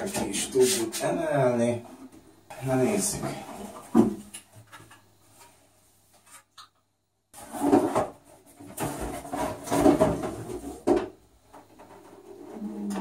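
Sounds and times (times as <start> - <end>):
cardboard scraping and rubbing: 7.4 - 10.9.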